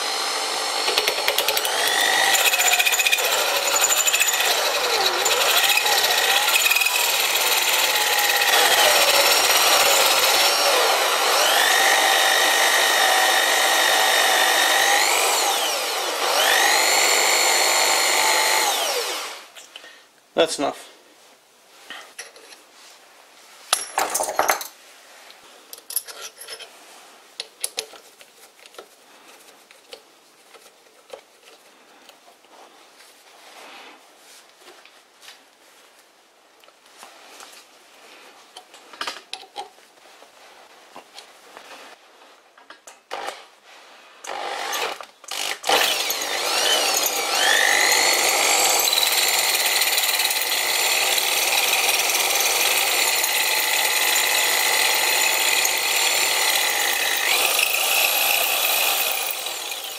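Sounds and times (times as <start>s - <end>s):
drill motor whining: 0.0s - 19.4s, 44.3s - 59.9s.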